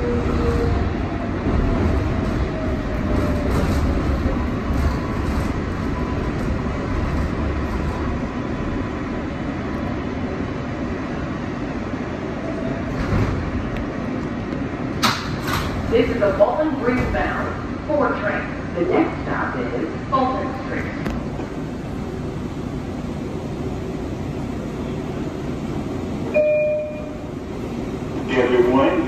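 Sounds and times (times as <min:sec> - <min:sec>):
subway car rumble and hum: 0:00.0 - 0:29.0.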